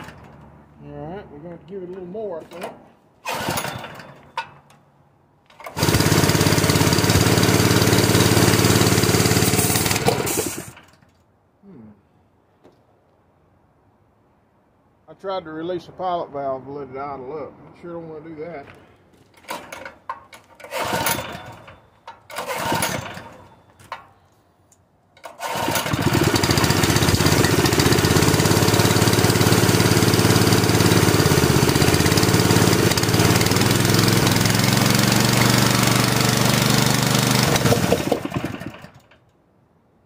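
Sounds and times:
small engine sputtering and running: 3.3s - 4.1s, 5.6s - 10.9s, 20.6s - 23.6s, 25.2s - 39.2s.

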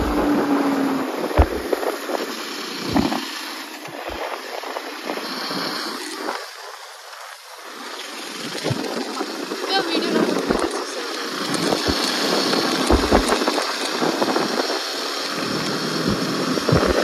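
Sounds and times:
low buffeting thumps: 0.0s - 2.3s, 10.2s - 10.8s, 11.5s - 13.6s, 16.1s - 17.0s
wind rushing over microphone: 0.0s - 17.0s.

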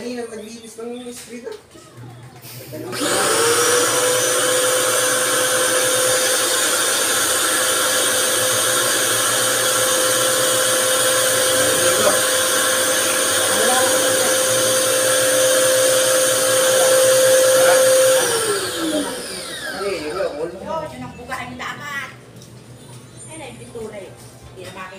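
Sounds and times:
pressure washer motor humming: 2.4s - 20.5s.

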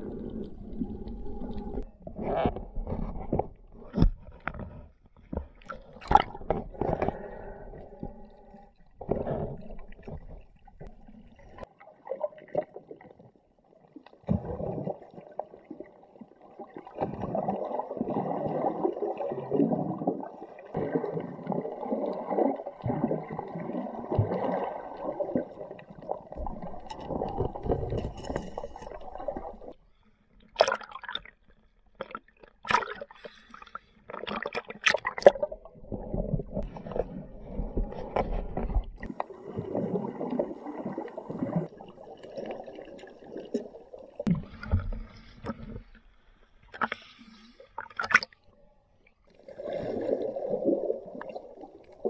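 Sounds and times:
water gurgling and sloshing: 0.0s - 52.0s.

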